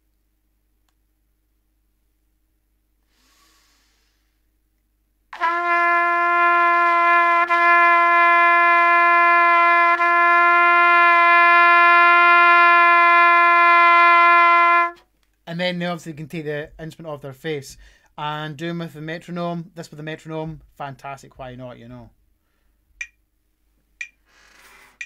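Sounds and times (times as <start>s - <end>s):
breath through the nose: 3.0s - 4.4s
trumpet long note: 5.3s - 15.0s.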